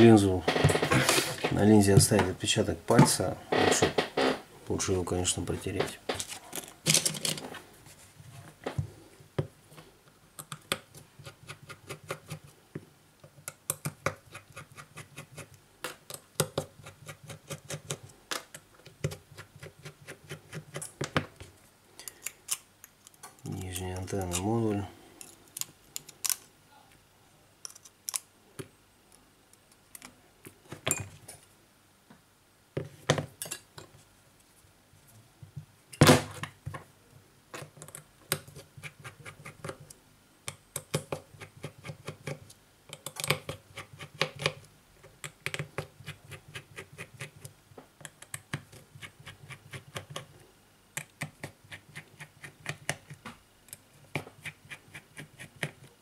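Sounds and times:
small metal parts handled: 6.1s - 7.5s.

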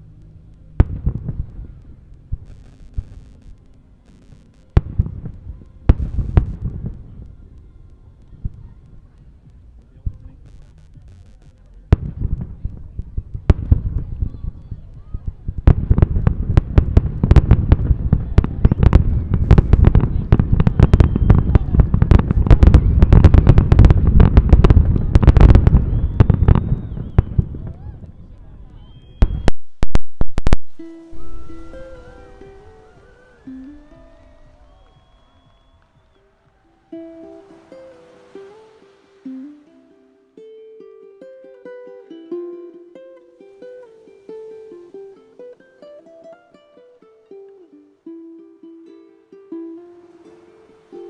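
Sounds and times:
low rumble: 0.0s - 36.1s
firework crackles: 0.0s - 40.7s, 43.4s - 46.1s, 49.7s - 51.0s
faint high whistle: 20.7s - 21.7s, 25.7s - 28.0s, 28.8s - 29.6s, 30.8s - 40.7s.

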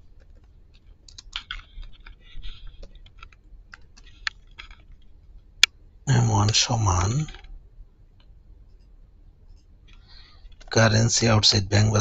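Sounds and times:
typing on computer keyboard: 0.1s - 4.8s.

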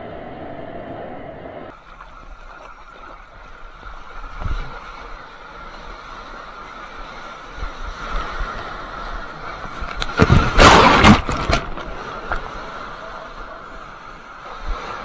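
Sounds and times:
surf water sloshing: 1.7s - 15.0s
breaking whitewater splashing: 8.4s - 12.5s.

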